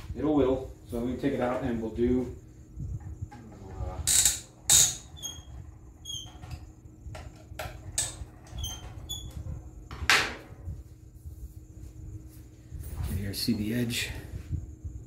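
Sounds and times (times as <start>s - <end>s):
short high squeaks: 4.1s - 6.7s, 8.0s - 9.5s.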